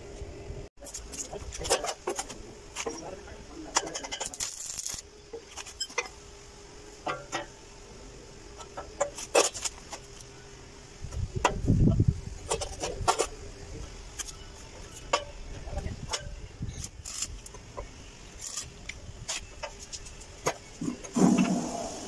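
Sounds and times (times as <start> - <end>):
welding arc crackle: 0.8 - 6.3, 16.7 - 17.6, 18.3 - 20.2.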